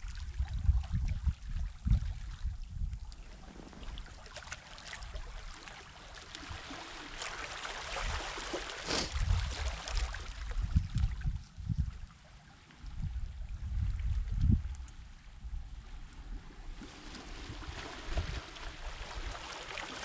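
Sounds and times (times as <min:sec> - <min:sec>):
waves on shingle shore: 0:05.7 - 0:10.2, 0:16.8 - 0:20.0.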